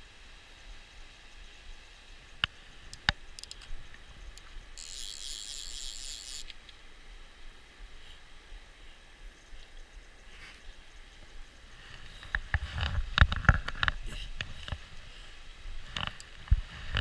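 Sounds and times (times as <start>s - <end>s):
faint stream flowing: 0.0s - 17.0s
sharp clicks: 2.4s - 6.8s
fly reel ratchet rattling: 2.9s - 3.7s, 4.4s - 6.6s.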